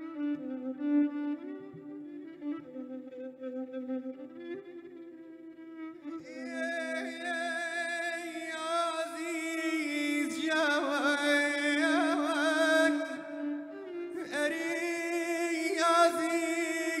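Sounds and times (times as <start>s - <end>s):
man singing with vibrato: 6.2s - 13.5s, 14.2s - 17.0s.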